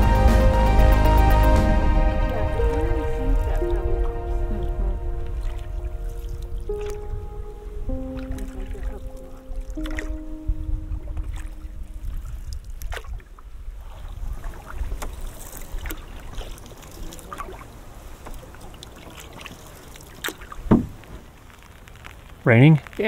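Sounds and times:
background music: 0.0 - 12.2
steady low rumble: 0.0 - 14.4
paddle strokes in water: 0.0 - 22.3.

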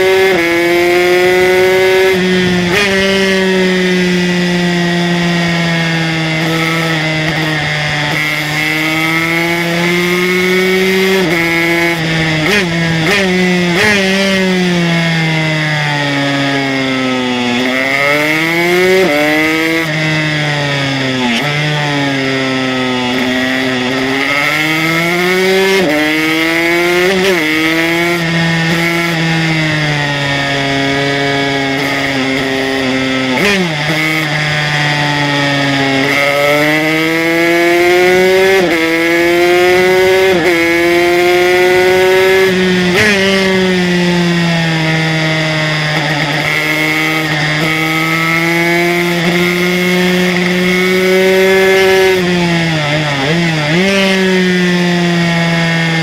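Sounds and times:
two-stroke motorcycle engine revving: 0.0 - 56.0.

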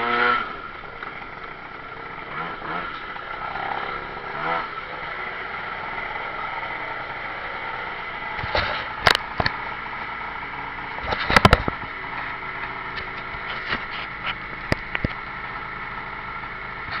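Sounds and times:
scooter engine idling: 0.0 - 17.0
sharp clicks and knocks: 8.4 - 9.6, 11.0 - 15.2.

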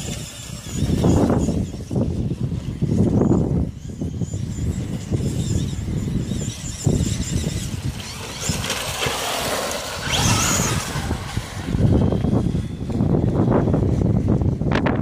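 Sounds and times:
electric motors whining: 0.0 - 14.9
wind buffeting microphone: 0.0 - 15.0.

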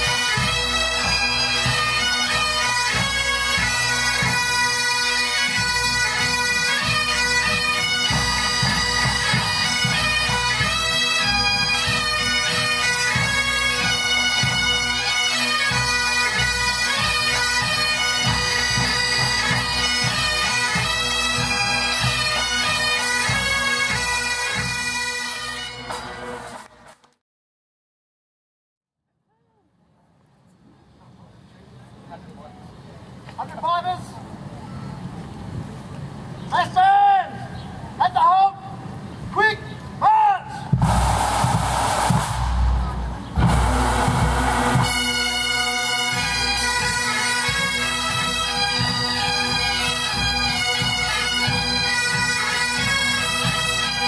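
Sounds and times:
bagpipes playing a melody: 0.0 - 26.4, 43.4 - 54.0
drum beats: 40.7 - 46.1.

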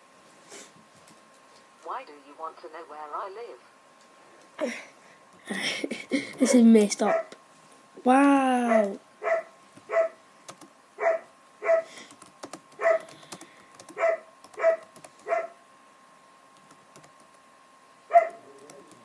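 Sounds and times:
dog barking: 6.5 - 7.4, 8.7 - 10.2, 11.0 - 11.9, 12.8 - 13.1, 14.0 - 15.6, 18.1 - 18.6
keyboard typing clicks: 10.5 - 10.7, 12.1 - 15.3, 16.6 - 17.4.

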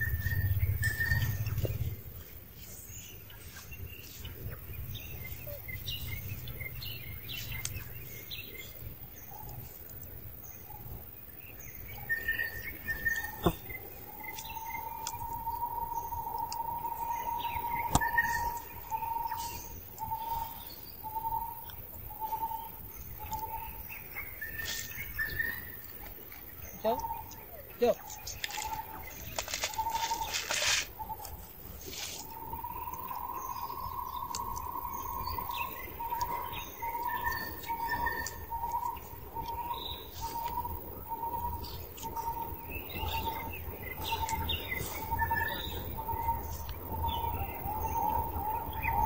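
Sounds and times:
bird whistling steady note: 0.0 - 1.6
birds chirping: 0.0 - 49.0.

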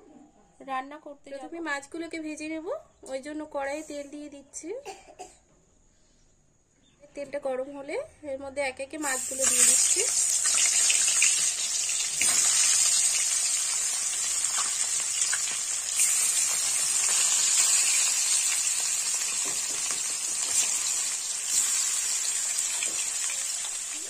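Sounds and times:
fish sizzling in hot oil: 9.0 - 24.0.

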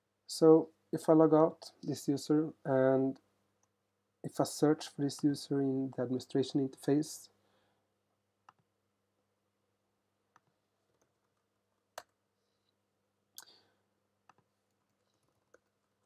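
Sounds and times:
computer mouse and keyboard clicks: 14.2 - 16.0.

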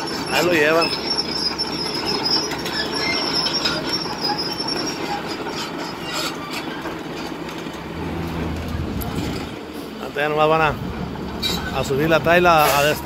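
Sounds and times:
high metal squeal: 0.0 - 7.3, 11.4 - 13.0
sheet metal screeching and crunching: 0.0 - 9.6, 11.4 - 13.0.

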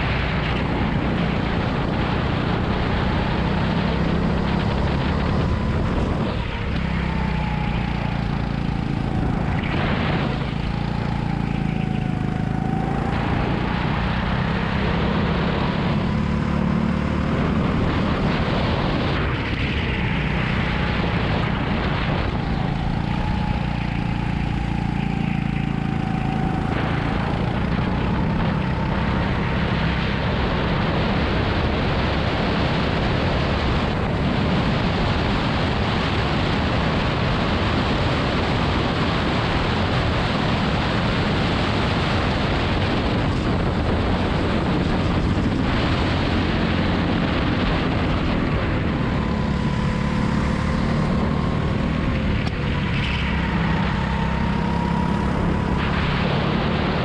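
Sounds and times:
go-kart engine revving: 35.4 - 57.0.

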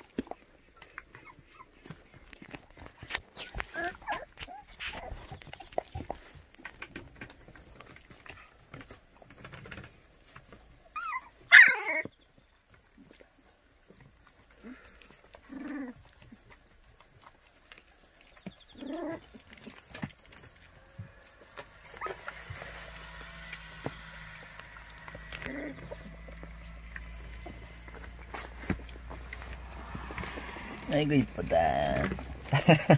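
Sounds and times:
puppies whimpering and squealing: 0.0 - 6.3, 10.2 - 32.8
faint scuffling: 18.8 - 32.9.

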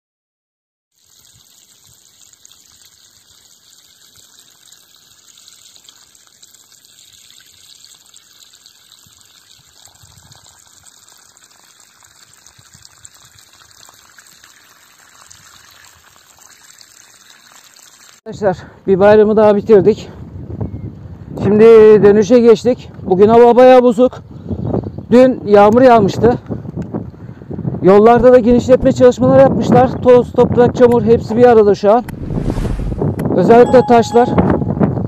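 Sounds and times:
water pouring from a hose: 0.9 - 18.3.

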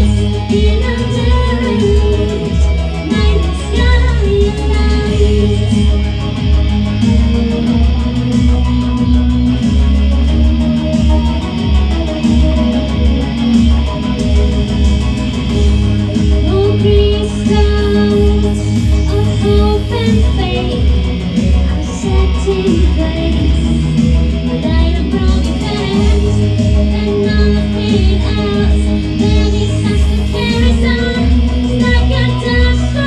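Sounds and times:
woman singing: 0.0 - 6.1, 16.4 - 33.0
electric guitar: 0.0 - 33.0
steady drum beat: 0.0 - 33.0
synthesizer: 0.0 - 33.0.

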